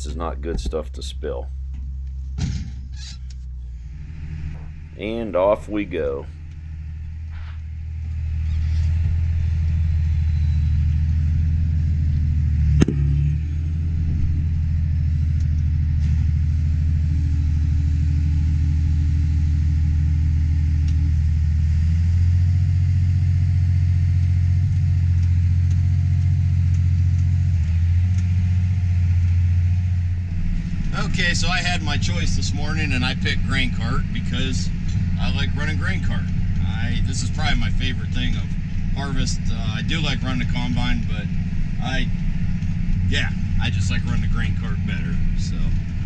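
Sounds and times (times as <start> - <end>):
tractor diesel engine drone: 0.0 - 46.0
sharp clunk: 2.4 - 3.0, 12.8 - 13.2.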